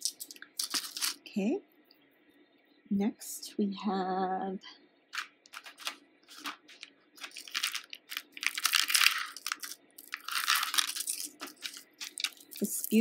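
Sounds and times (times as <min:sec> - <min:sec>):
beads clicking together: 0:00.0 - 0:01.2, 0:05.2 - 0:13.0
rustling and crinkling: 0:00.0 - 0:01.3, 0:05.1 - 0:13.0.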